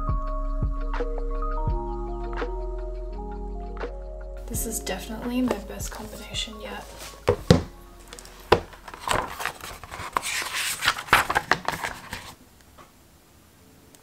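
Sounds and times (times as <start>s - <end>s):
pages rustling: 5.4s - 12.4s
book cover knocking on table: 6.9s - 9.6s, 11.1s - 12.0s.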